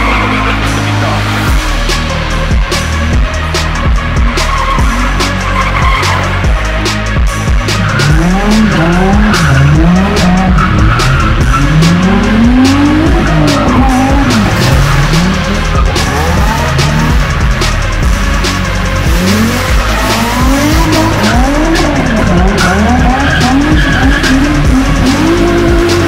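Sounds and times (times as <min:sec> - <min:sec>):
car engine revving: 0:00.0 - 0:26.0
music with steady beat: 0:00.0 - 0:26.0
tyre squeal: 0:19.5 - 0:25.6.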